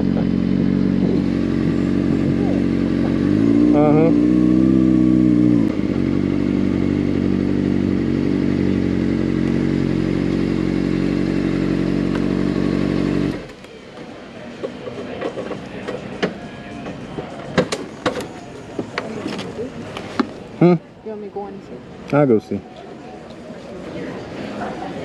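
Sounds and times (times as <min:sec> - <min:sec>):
motorcycle engine idling: 0:00.0 - 0:13.7.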